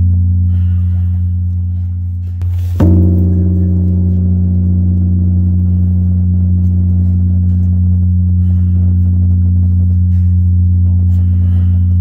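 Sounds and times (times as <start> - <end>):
temple bell ringing: 2.8 - 9.2.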